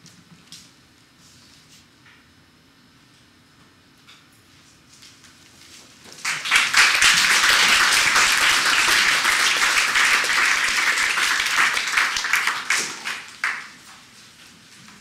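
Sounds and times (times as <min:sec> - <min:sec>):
audience applauding: 0:06.2 - 0:13.9.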